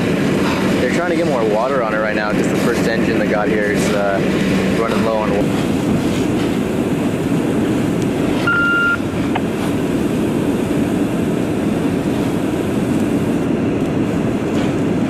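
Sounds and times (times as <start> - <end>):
fire engine pump rumble: 0.0 - 15.0
short high beep: 8.5 - 9.0.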